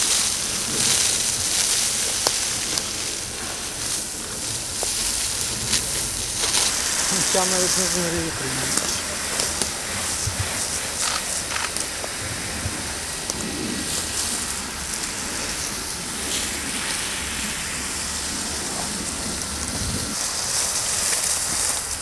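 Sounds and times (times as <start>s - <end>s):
hose spraying water jet: 0.0s - 22.0s
water falling on brush: 3.7s - 12.2s.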